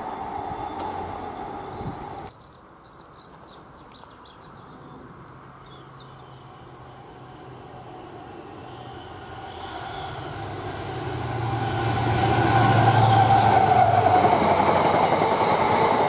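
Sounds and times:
diesel locomotive droning: 0.0s - 2.3s, 6.2s - 16.0s
passing train: 0.0s - 2.3s, 5.0s - 16.0s
small birds chirping: 2.0s - 7.2s, 7.8s - 10.4s.

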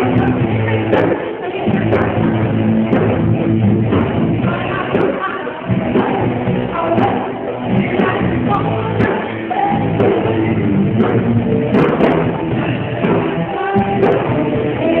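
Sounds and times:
person singing: 0.0s - 3.1s, 4.4s - 15.0s
drums: 0.0s - 15.0s
electric guitars: 0.0s - 15.0s.

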